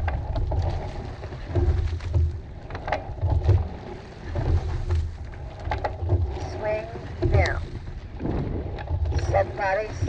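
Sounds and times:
oars knocking in oarlocks: 0.0 - 10.0
water rushing past hull: 0.0 - 10.0
low rumbling surges: 6.2 - 10.0.

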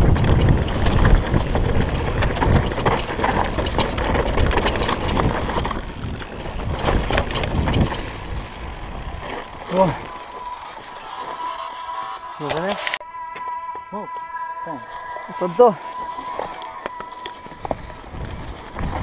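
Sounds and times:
wind buffeting microphone: 0.0 - 10.3, 17.6 - 19.0
tyres rolling on loose dirt: 0.0 - 11.8, 15.7 - 19.0
bike chain and frame rattling: 0.0 - 12.8, 15.4 - 19.0.

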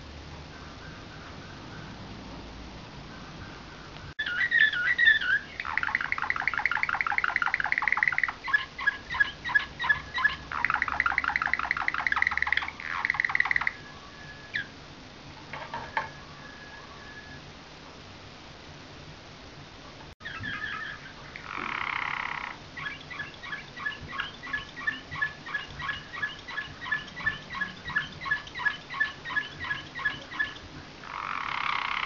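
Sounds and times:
canary singing trills: 3.1 - 14.8, 20.2 - 32.0.

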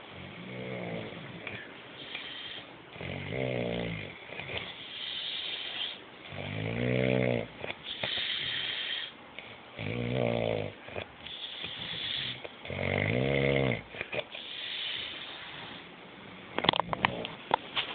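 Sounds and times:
man snoring: 0.2 - 1.6, 2.2 - 9.1, 9.8 - 10.8, 11.4 - 13.9
hissing breath: 1.5 - 2.8, 4.5 - 6.1, 7.8 - 9.2, 11.2 - 12.4, 14.3 - 15.9.

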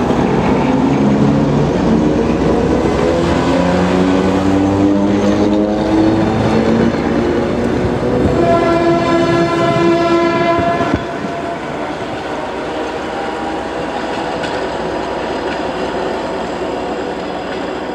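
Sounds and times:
train wheels rolling on rails: 0.0 - 17.9
train horn: 8.0 - 13.7.

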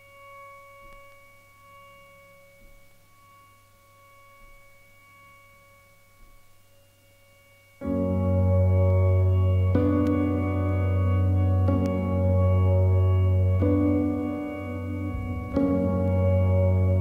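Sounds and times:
drone of bell-like tones: 0.0 - 17.0
sustained chord with deep bass: 7.8 - 17.0.

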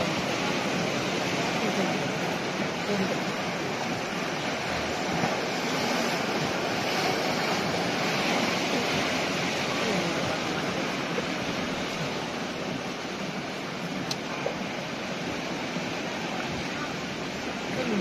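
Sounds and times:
car wheels pushing through water: 0.0 - 18.0
floodwater rushing and sloshing: 0.0 - 18.0.

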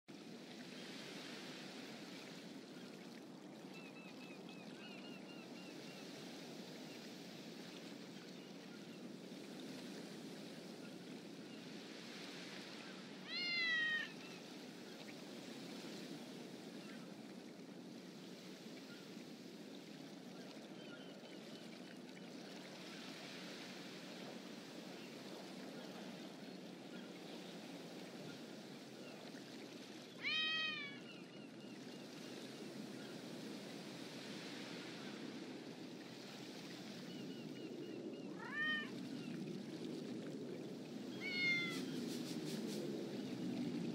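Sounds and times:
cat meowing: 13.2 - 14.2, 30.2 - 31.0, 38.4 - 38.9, 41.2 - 41.9.

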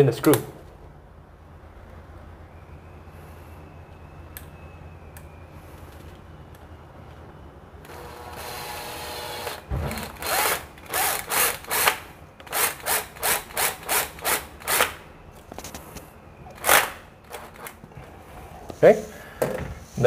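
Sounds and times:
drill driving a screw: 7.8 - 15.0, 16.6 - 17.7.

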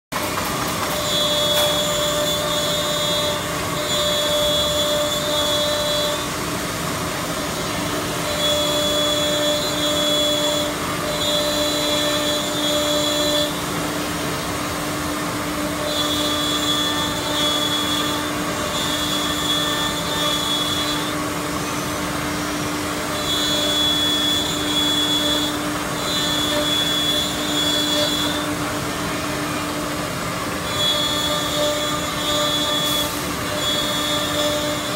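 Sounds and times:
router spindle whine: 0.2 - 34.9.

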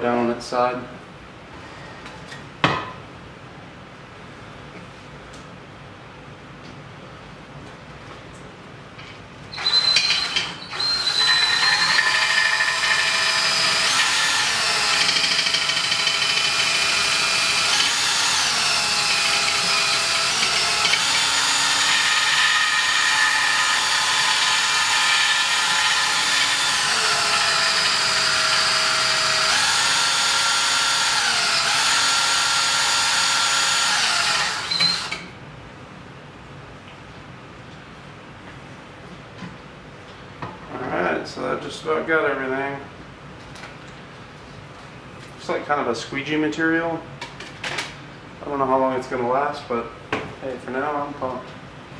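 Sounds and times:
cordless drill motor whine: 9.6 - 35.3.

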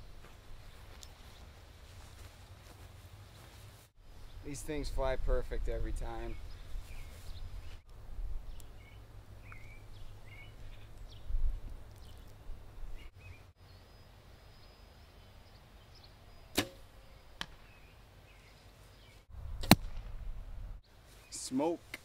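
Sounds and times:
birds chirping: 3.4 - 7.8, 8.4 - 19.3, 20.8 - 21.9
arrow striking target: 16.5 - 17.6, 19.6 - 20.2
bow string snap: 16.5 - 17.6, 19.6 - 20.2.

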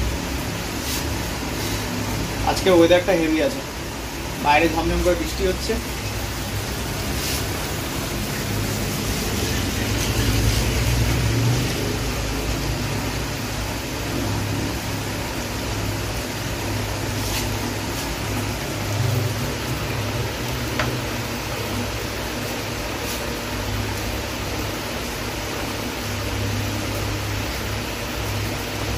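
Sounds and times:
low rumbling hum: 0.0 - 2.5
heavy rain: 0.0 - 28.9.

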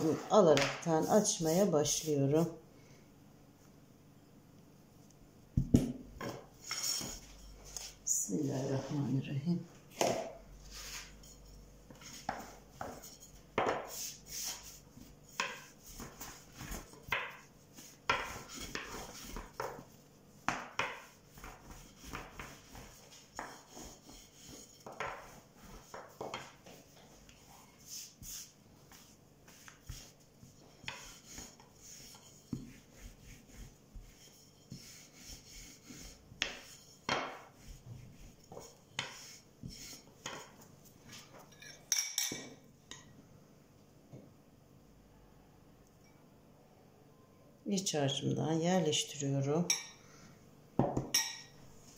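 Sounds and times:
rolling pin knocking and rubbing: 10.0 - 40.6.

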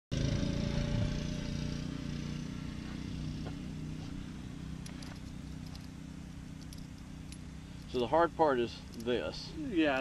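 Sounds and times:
scooter engine humming: 0.1 - 8.6.

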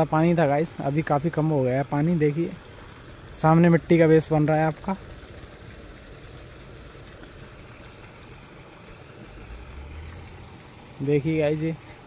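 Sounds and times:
outdoor hiss: 0.0 - 12.0
distant construction machinery hum: 4.8 - 12.0.

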